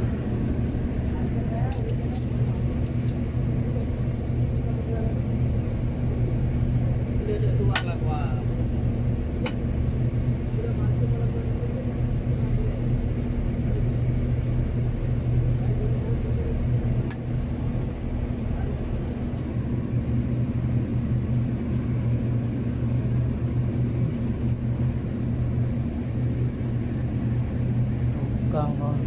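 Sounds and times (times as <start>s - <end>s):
engine humming: 0.0s - 29.0s.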